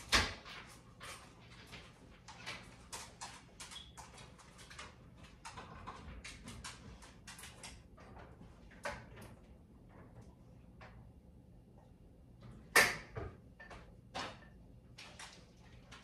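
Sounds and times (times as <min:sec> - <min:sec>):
dog claws tapping on hard floor: 0:00.1 - 0:09.3.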